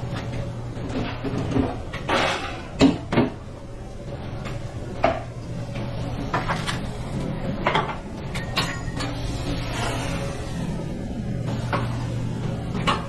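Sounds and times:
steady low hum: 0.0 - 13.0
kitchen items knocking and banging: 0.9 - 3.4, 7.5 - 9.1.

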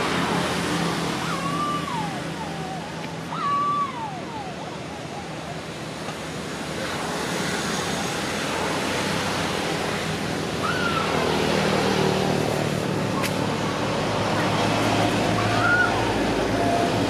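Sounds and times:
rising and falling call: 0.0 - 5.8
steady rushing noise: 0.0 - 17.0.

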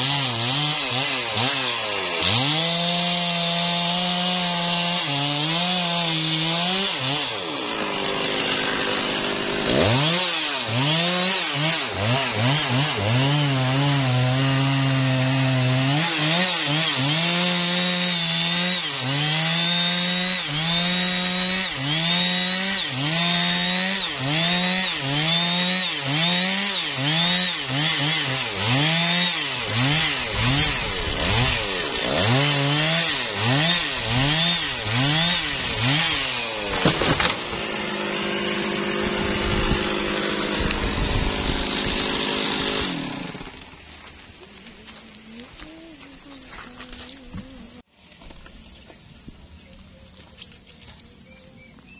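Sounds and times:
chainsaw cutting wood under load: 0.0 - 49.0.

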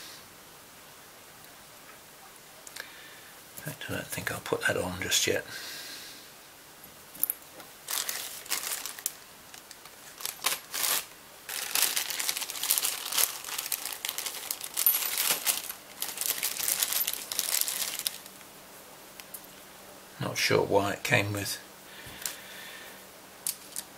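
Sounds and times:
plastic bag crinkling: 7.6 - 18.5
small metal parts clinking: 11.6 - 18.2.

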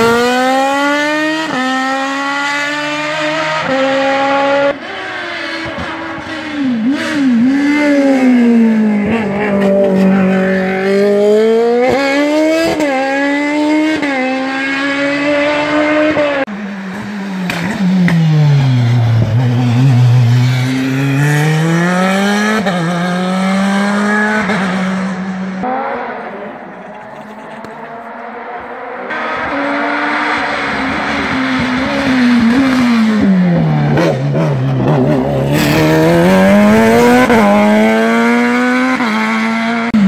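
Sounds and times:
race car engine upshifting: 0.0 - 40.0.

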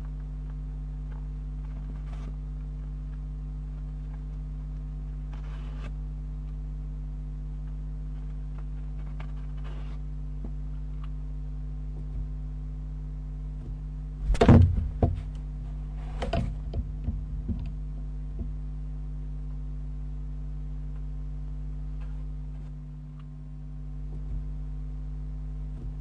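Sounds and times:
electrical hum: 0.0 - 26.0
owl knocking on wooden nestbox: 14.3 - 15.3.

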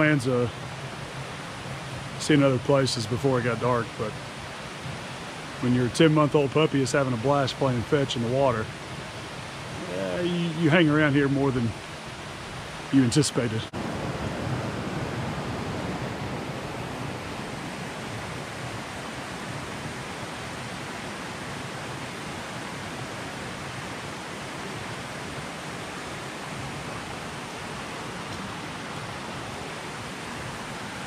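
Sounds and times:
creek water rushing over cascades: 0.0 - 31.0.

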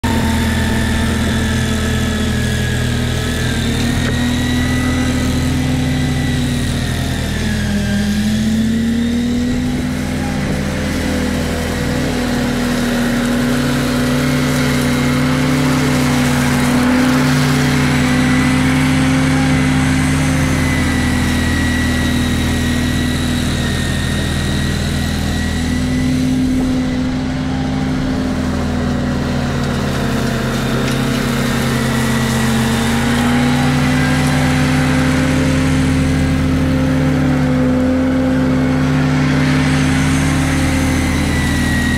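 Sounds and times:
high blower whine: 0.0 - 41.9
mower engine running: 0.0 - 41.9.

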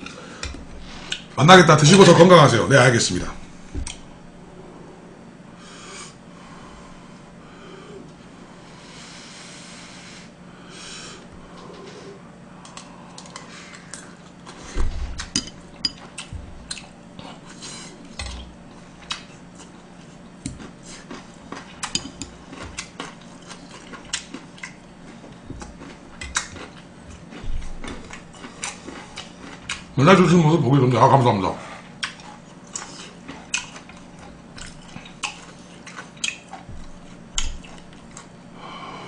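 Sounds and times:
low hum: 0.0 - 9.8
chewing: 15.2 - 30.0, 31.8 - 38.4.

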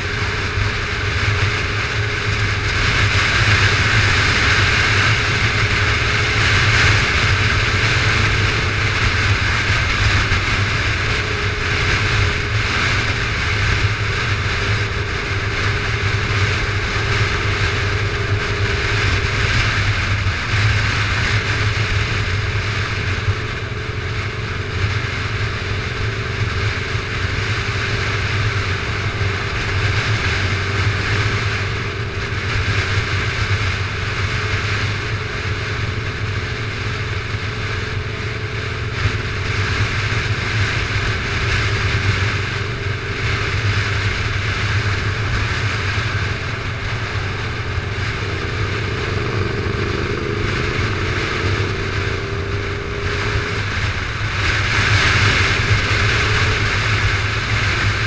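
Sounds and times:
motorcycle engine running: 0.0 - 58.0
wind and road noise: 0.0 - 58.0.

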